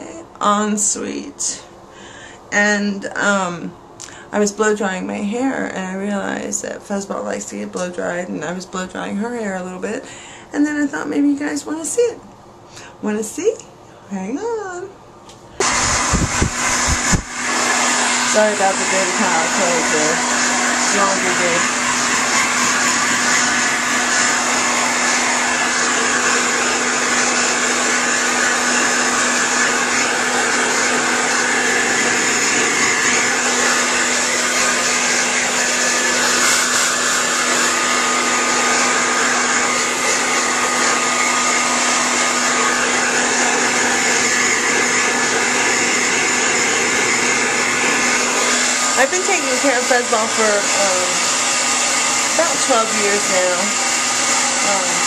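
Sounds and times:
hair dryer running: 0:15.3 - 0:55.0.

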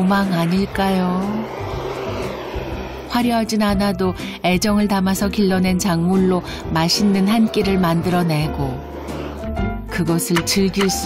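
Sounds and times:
person's voice: 0:00.0 - 0:01.5, 0:03.1 - 0:08.8, 0:09.9 - 0:11.0
background music: 0:00.0 - 0:11.0
wood fire burning: 0:00.6 - 0:03.3.

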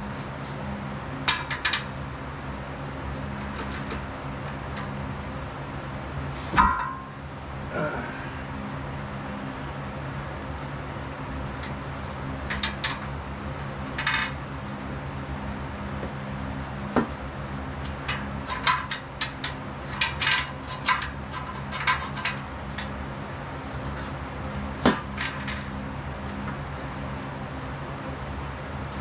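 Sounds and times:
sharp metal clank: 0:06.6 - 0:07.1.

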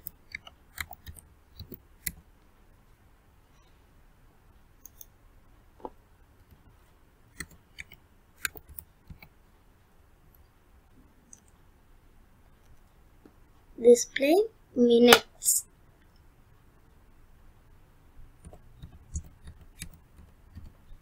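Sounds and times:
computer mouse clicks: 0:00.0 - 0:02.2, 0:04.8 - 0:05.2, 0:07.3 - 0:09.4, 0:11.3 - 0:11.6, 0:18.4 - 0:21.0.

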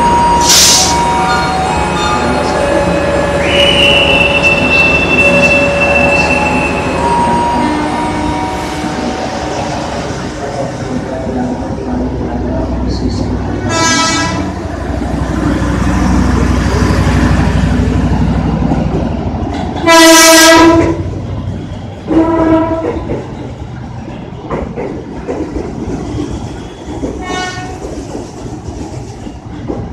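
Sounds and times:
train rumbling: 0:00.0 - 0:29.9
train horn blasts: 0:07.6 - 0:09.0, 0:13.7 - 0:14.6, 0:19.8 - 0:21.1, 0:22.1 - 0:23.0, 0:27.2 - 0:27.8.

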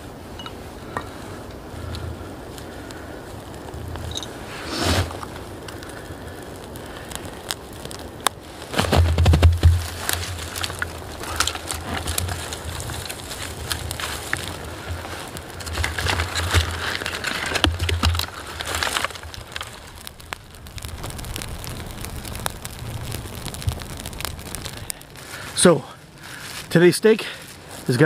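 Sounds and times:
wood fire crackling and popping: 0:00.0 - 0:28.0
low rumble: 0:10.0 - 0:26.2.

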